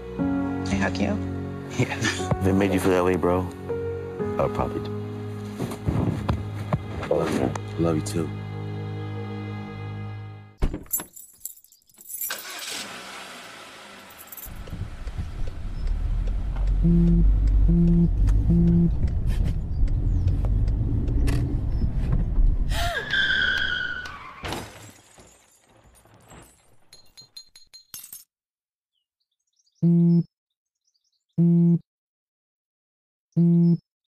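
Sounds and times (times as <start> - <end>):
low car rumble: 13.5 - 24.2
tyre screech: 22.7 - 24.6
crash with breaking glass: 24.3 - 27.3
phone vibration buzz: 29.8 - 30.3, 31.4 - 31.8, 33.4 - 33.8.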